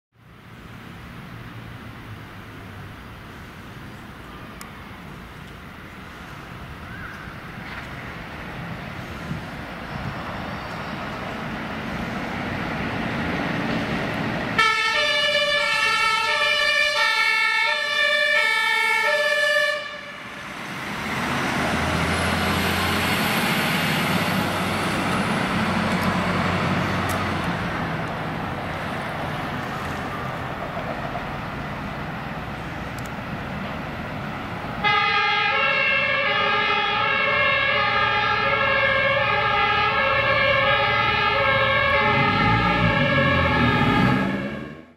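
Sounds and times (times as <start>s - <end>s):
deep diesel fire truck engine: 0.2s - 44.9s
two-tone fire siren: 14.6s - 20.5s, 34.8s - 44.9s.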